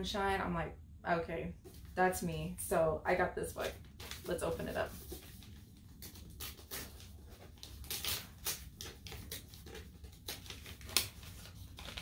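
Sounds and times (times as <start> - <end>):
paper wrapping crinkling: 3.6 - 12.0.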